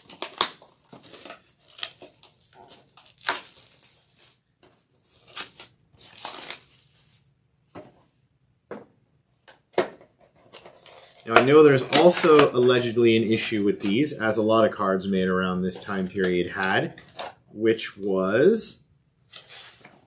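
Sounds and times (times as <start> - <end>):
plastic shrink-wrap crinkling: 0.0 - 7.3, 10.8 - 14.4.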